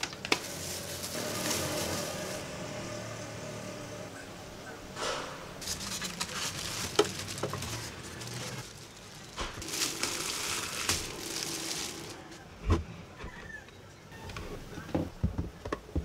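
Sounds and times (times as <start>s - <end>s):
plastic packaging crinkling: 0.0s - 2.4s, 5.6s - 12.5s.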